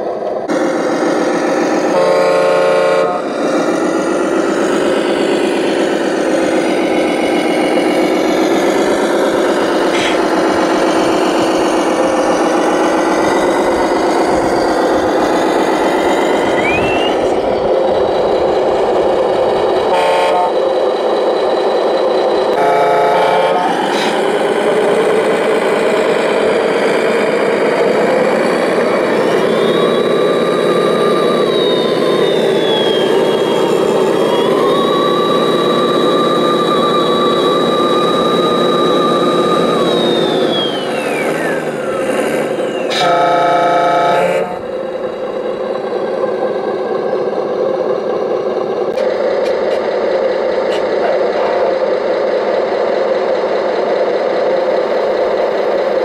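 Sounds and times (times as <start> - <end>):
simulated diesel engines: 0.0 - 56.0
high whine: 4.1 - 20.6.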